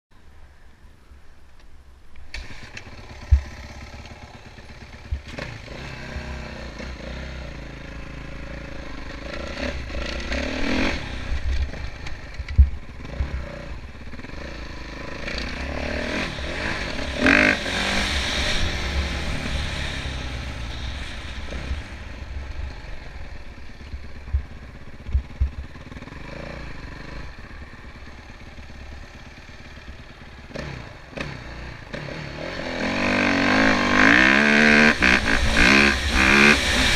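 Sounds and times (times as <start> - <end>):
motocross bike engine revving: 2.3 - 36.9
sharp low thumps: 12.5 - 13.4, 24.0 - 25.8.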